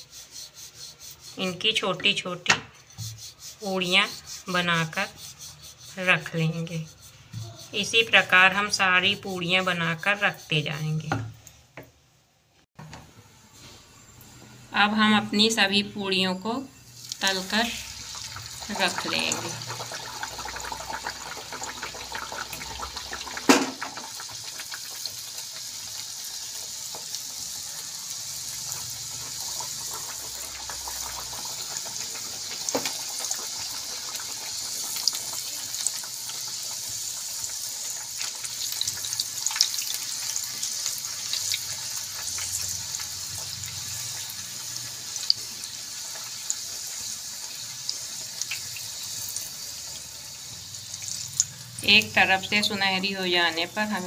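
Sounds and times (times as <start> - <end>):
deep frying oil sizzling: 13.6 - 54.0
oil crackling and popping: 17.9 - 27.5, 28.5 - 49.8.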